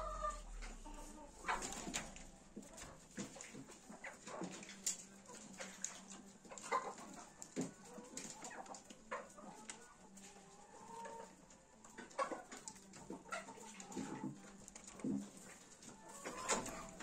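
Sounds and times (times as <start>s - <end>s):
rustles: 0.0s - 6.7s
faint farm animal calls: 0.0s - 17.0s.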